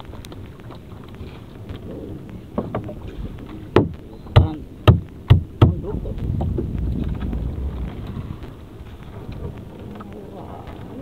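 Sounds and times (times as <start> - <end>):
low rumble of wind and sea: 0.0 - 11.0
knocks on boat hull: 3.7 - 6.7.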